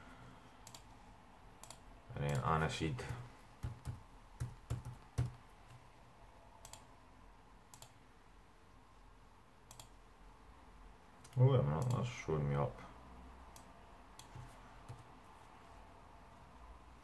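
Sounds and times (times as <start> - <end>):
computer mouse clicks: 0.6 - 0.9, 1.6 - 2.5, 6.6 - 6.9, 7.7 - 8.0, 9.7 - 10.0, 11.2 - 12.0, 13.5 - 15.1
laptop keyboard tapping: 3.0 - 5.9, 14.2 - 15.1.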